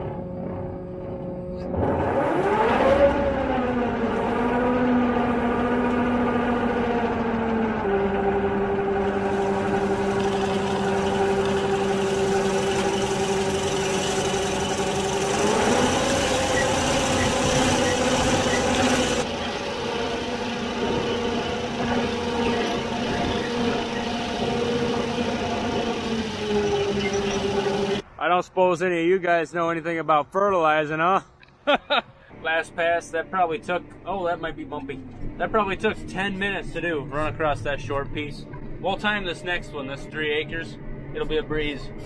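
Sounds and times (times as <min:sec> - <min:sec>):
spreader machine whine: 0:00.0 - 0:28.0.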